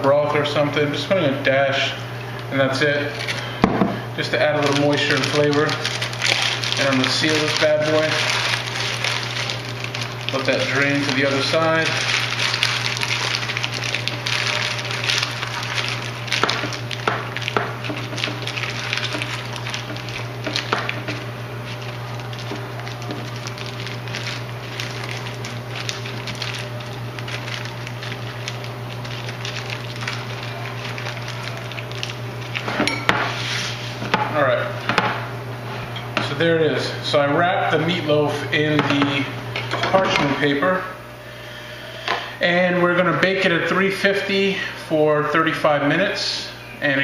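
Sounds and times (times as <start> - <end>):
steady low hum: 0.0 - 46.9
parchment paper crinkling: 4.2 - 34.0.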